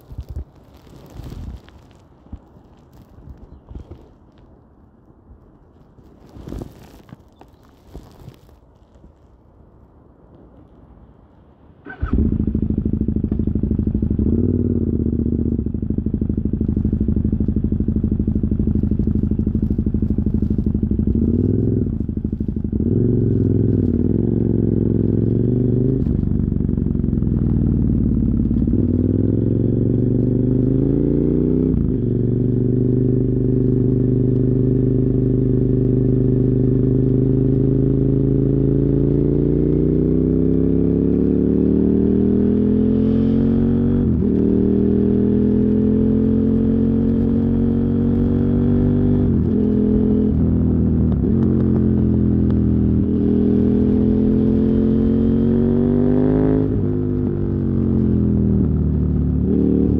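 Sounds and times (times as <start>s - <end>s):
motorcycle engine revving: 11.8s - 59.9s.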